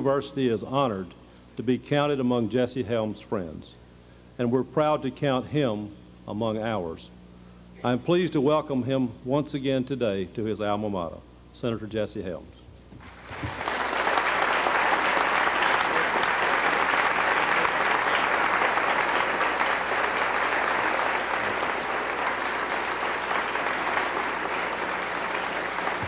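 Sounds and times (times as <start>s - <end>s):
audience applauding: 13.1s - 26.0s.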